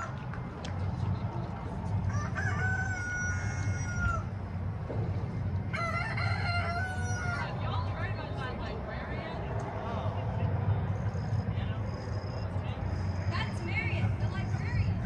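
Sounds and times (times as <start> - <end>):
rooster crowing: 2.0 - 4.4, 5.7 - 7.8.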